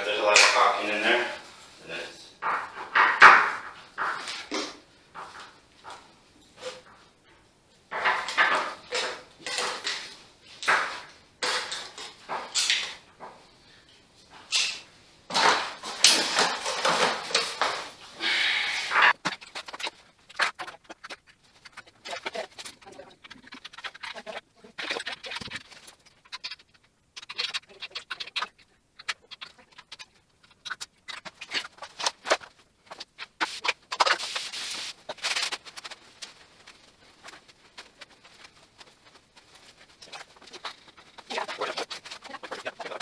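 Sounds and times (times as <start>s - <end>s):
wiping glass: 18.3s - 43.0s.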